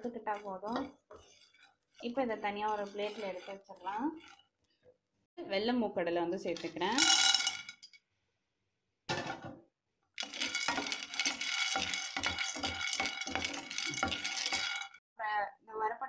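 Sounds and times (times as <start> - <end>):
chickpeas rattling in frying pan: 0.0 - 4.4, 6.8 - 7.8, 10.2 - 15.0.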